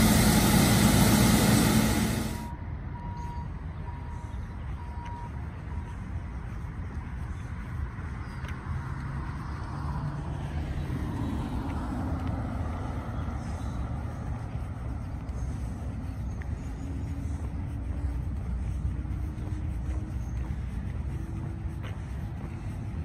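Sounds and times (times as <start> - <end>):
steady low rumble: 0.0 - 2.5, 11.6 - 23.0.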